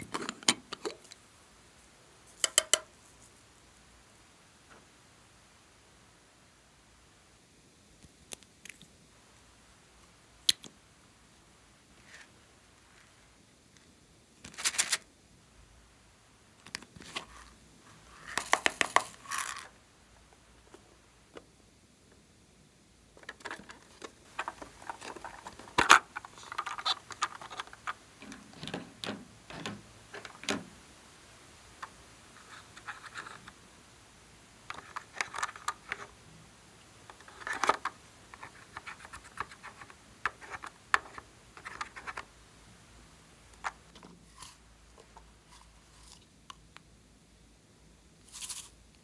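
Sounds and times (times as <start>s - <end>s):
plastic spatula scraping palette: 23.2s - 28.8s, 37.1s - 42.3s
plastic cases clicking open and shut: 23.2s - 30.7s, 34.7s - 36.1s, 37.1s - 42.3s.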